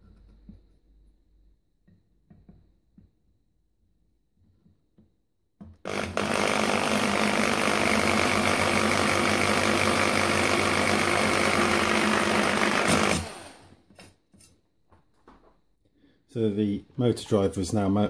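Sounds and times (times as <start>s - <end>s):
electric drill boring metal: 5.9s - 13.8s.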